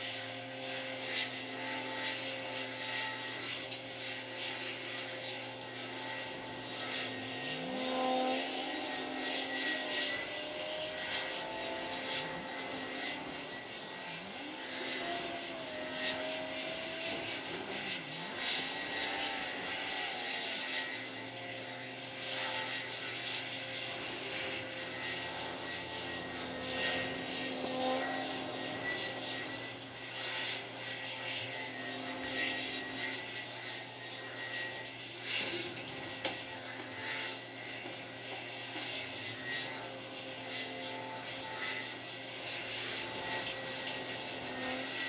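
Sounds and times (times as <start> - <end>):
heavy diesel machinery drone: 3.2 - 40.5
low hum: 5.8 - 36.9.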